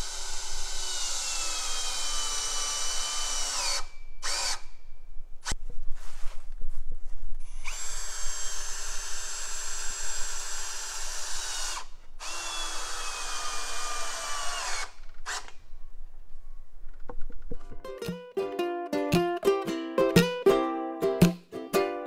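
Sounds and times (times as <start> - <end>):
cordless drill drilling into wood: 0.0 - 4.8, 7.5 - 15.6.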